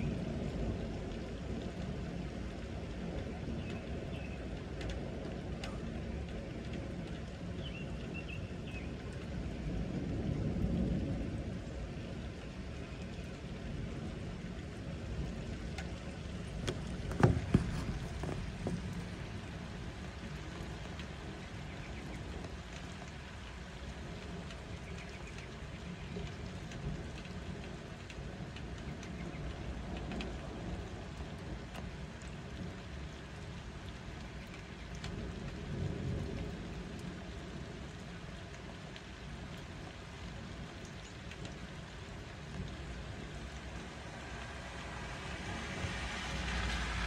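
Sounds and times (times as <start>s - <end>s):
low rumble of thunder: 0.0s - 47.0s
steady rain falling: 0.0s - 47.0s
drops ticking on window glass: 15.2s - 19.6s.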